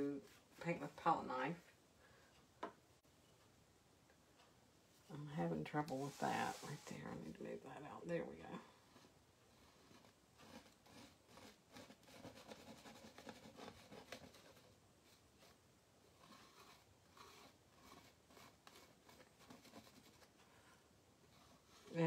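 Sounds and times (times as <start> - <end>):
palette knife scraping on canvas: 8.8 - 14.5, 16.2 - 20.2.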